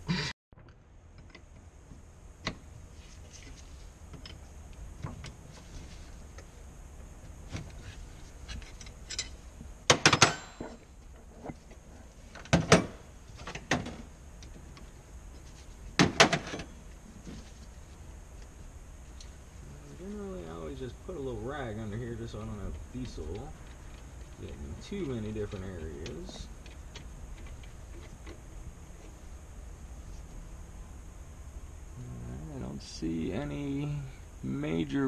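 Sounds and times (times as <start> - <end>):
sharp metal clanks: 9.0 - 10.8.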